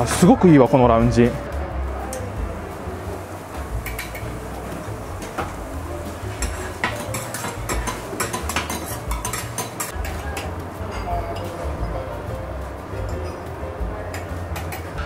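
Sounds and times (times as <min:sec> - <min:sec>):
food sizzling: 0:00.0 - 0:15.0
metal spatulas clinking on griddle: 0:06.4 - 0:11.5.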